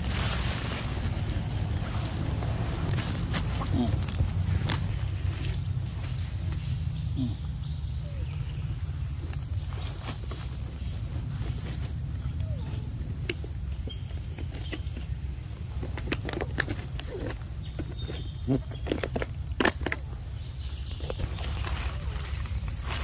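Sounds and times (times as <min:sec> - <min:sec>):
low rumble: 0:00.0 - 0:09.8
clicks and crackles: 0:15.8 - 0:20.1.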